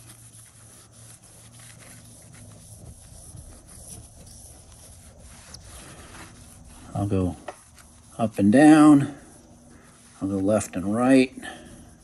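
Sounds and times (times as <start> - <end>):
low steady hum: 0.0 - 12.0
paper towel rubbing on tile: 0.0 - 12.0.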